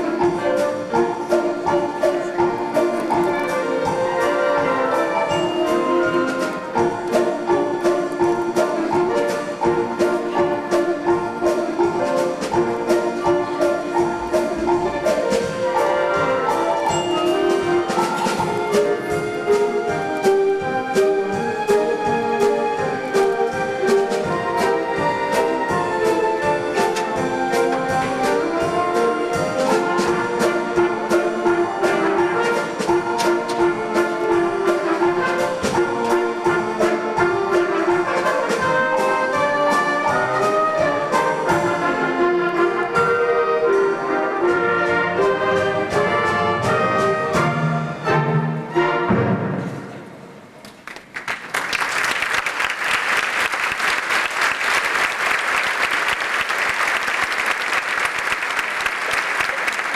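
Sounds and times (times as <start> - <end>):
orchestra playing: 0.0 - 59.9
audience applause: 50.6 - 59.9.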